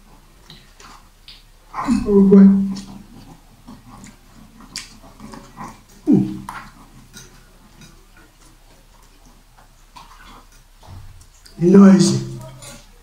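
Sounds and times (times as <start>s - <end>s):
people slurping noodles: 1.7s - 13.0s
short falling grunt: 6.1s - 6.5s.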